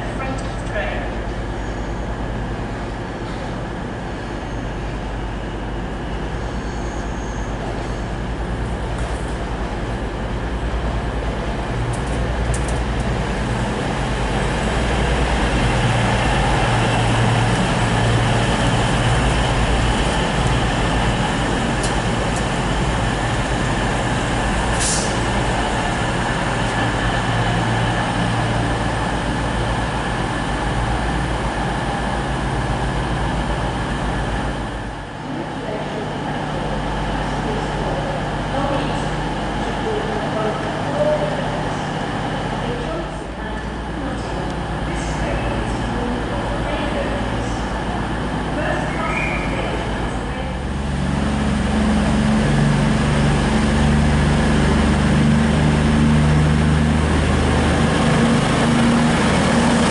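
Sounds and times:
diesel train engines humming: 0:00.0 - 0:59.9
low drone of diesel train: 0:00.0 - 0:59.9
hiss of air: 0:24.7 - 0:25.2.

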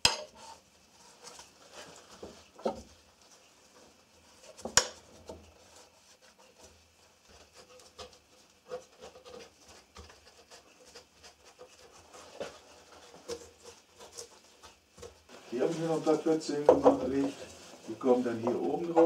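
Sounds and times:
cloth rubbing: 0:11.6 - 0:19.0.

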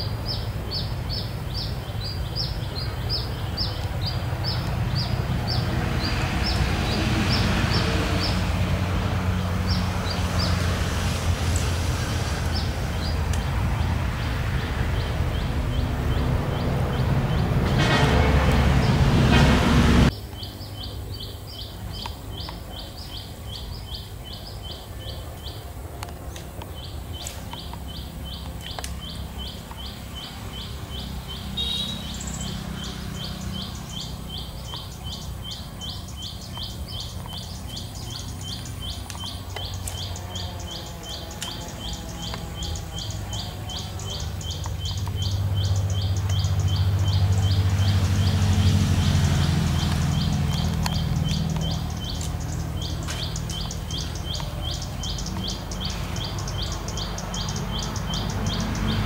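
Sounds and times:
loud rushing noise: 0:04.1 - 0:20.1.

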